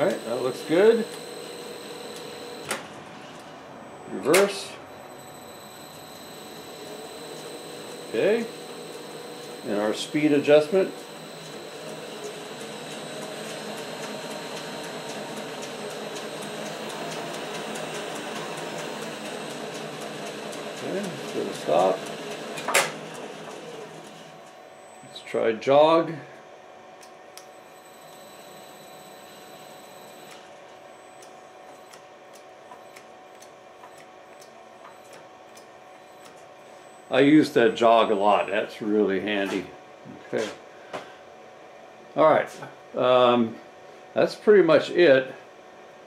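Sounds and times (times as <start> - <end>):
faint high whine: 0.0 - 17.1, 24.6 - 26.4, 27.4 - 32.0, 35.9 - 40.5
lathe whirring: 0.0 - 25.3, 27.6 - 32.0.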